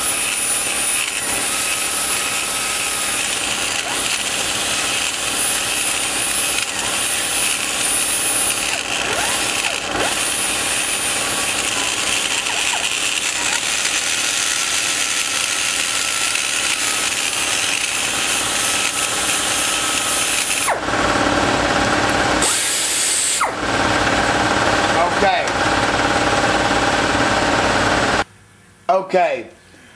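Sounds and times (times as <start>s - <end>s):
die grinder grinding metal: 0.0s - 28.2s.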